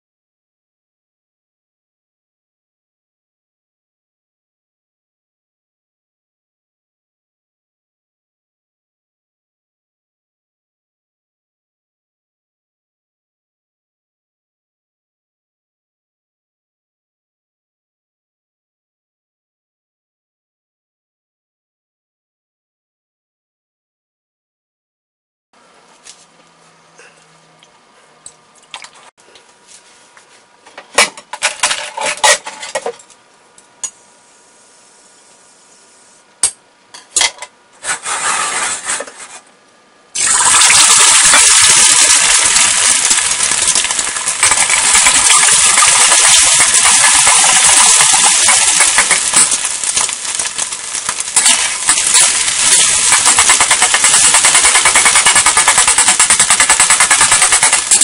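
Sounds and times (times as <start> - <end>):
metal spatula scraping wok: 37.8 - 39.4
eggs sizzling in hot oil: 40.2 - 58.0.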